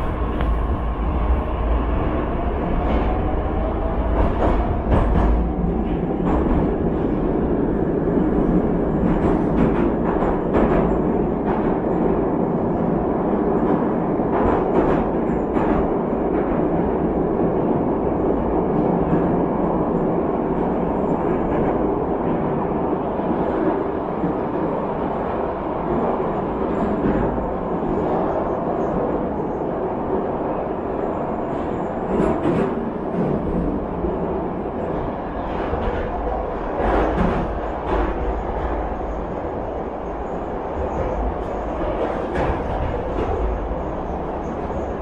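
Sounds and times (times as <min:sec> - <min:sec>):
train wheels rumbling on track: 0:00.0 - 0:45.0.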